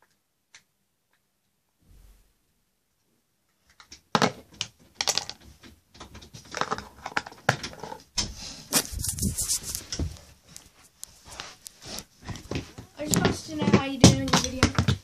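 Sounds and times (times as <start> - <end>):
handling noise at microphone: 6.0 - 13.8.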